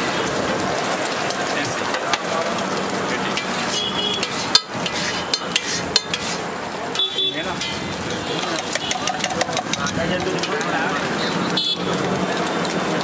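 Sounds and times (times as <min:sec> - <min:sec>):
egg sizzling on griddle: 0:00.0 - 0:13.0
metal spatula scraping: 0:03.3 - 0:06.5
spatula clinking on griddle: 0:03.3 - 0:07.8, 0:08.4 - 0:10.8.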